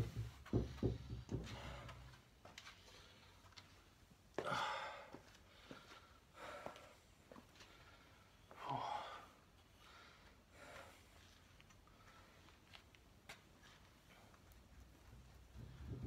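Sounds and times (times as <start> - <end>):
man sighing heavily: 4.4 - 5.2.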